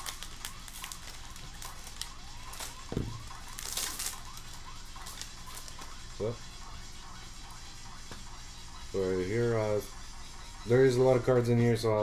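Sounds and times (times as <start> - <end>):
foil wrapper crinkling and tearing: 0.0 - 5.9.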